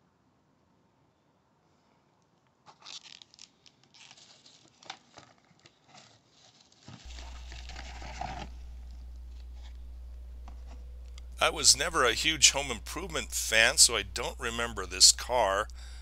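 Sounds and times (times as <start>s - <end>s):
plastic blister packs crinkling: 2.7s - 9.8s
steady low hum: 7.1s - 16.0s.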